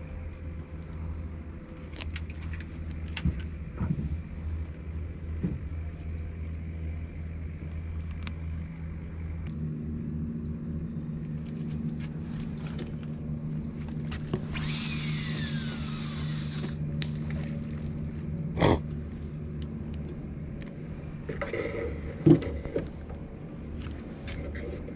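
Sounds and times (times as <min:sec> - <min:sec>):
low motor drone: 0:00.0 - 0:24.9
hiss: 0:14.5 - 0:16.8.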